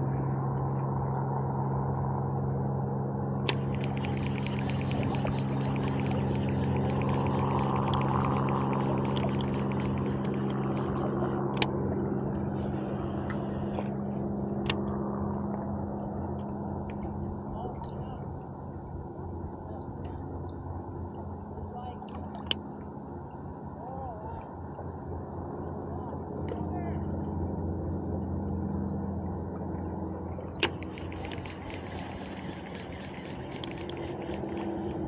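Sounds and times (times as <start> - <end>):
low hum: 0.0 - 35.0
river water flowing: 3.4 - 17.4, 29.1 - 35.0.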